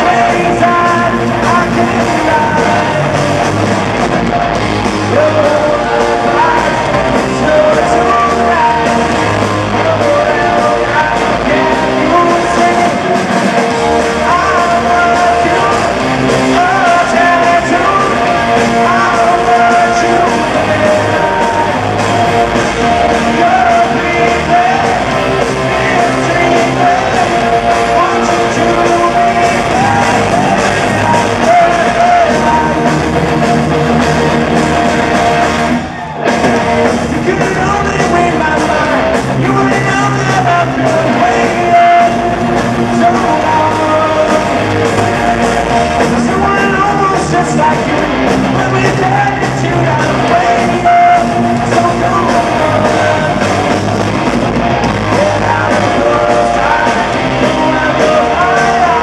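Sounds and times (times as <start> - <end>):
man singing: 0.0 - 3.7, 4.9 - 33.4, 36.8 - 54.0, 54.8 - 59.0
punk rock band playing live: 0.0 - 59.0.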